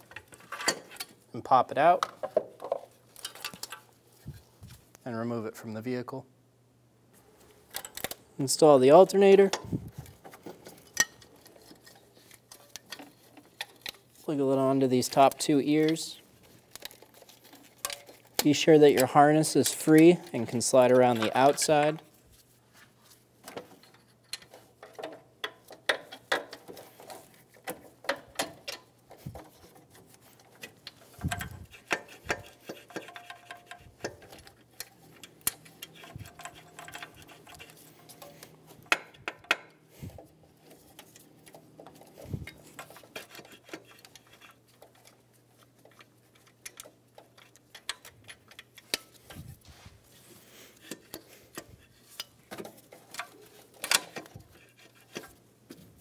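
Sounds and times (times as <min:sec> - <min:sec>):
metal clicks and knocks: 0:23.5 - 0:49.5, 0:50.8 - 0:55.8.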